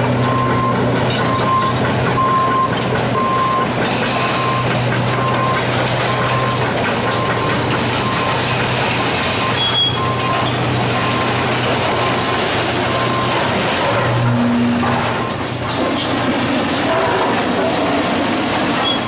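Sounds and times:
excavator engine hum: 0.0s - 19.0s
metal debris crunching and scraping: 0.1s - 19.0s
backup alarm beeping: 0.2s - 12.2s.

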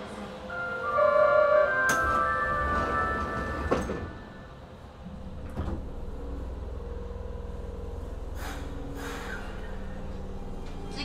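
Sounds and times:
train door thud: 1.9s - 4.4s
short air hisses: 8.4s - 9.5s.

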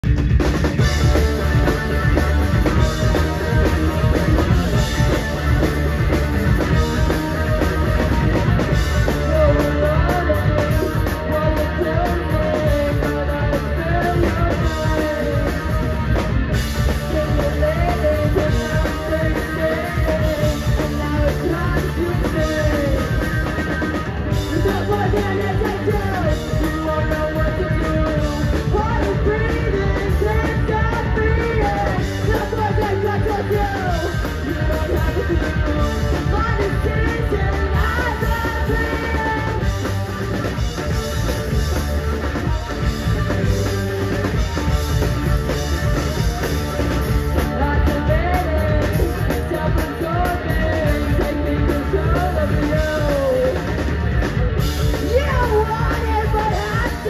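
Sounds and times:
punk rock band playing live: 0.0s - 57.0s
woman singing: 9.0s - 16.2s, 16.8s - 23.4s, 24.3s - 39.8s, 47.4s - 53.7s, 55.0s - 57.0s.

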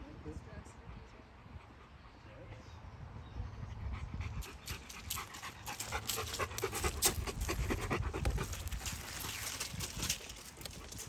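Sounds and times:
dog panting: 3.8s - 11.0s.

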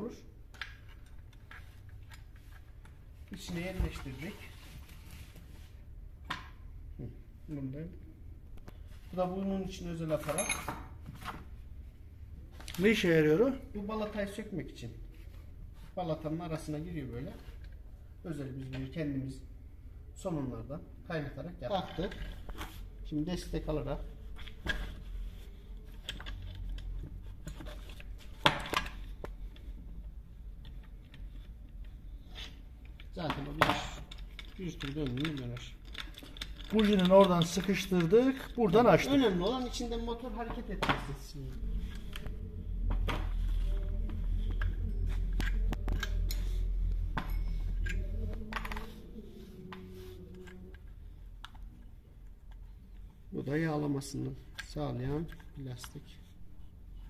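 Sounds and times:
metal parts clicking and clinking: 10.2s - 10.9s, 25.9s - 29.6s, 30.6s - 39.8s, 44.4s - 49.1s
metal tools clinking: 10.2s - 11.0s, 33.2s - 39.8s
steady low hum: 38.0s - 57.0s.

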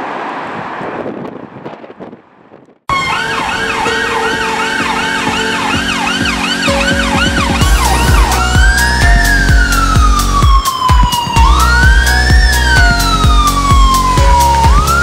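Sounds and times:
police siren: 2.9s - 15.0s
low rumble: 7.3s - 10.6s.

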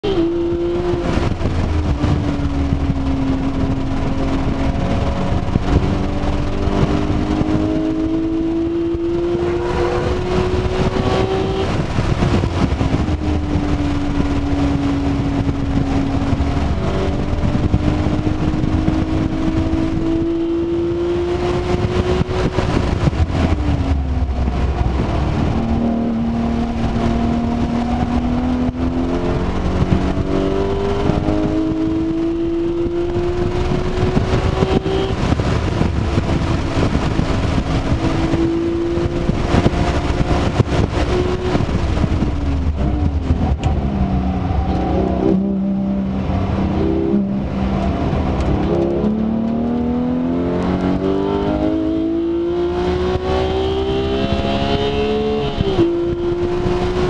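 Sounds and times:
car engine accelerating: 0.0s - 57.0s.

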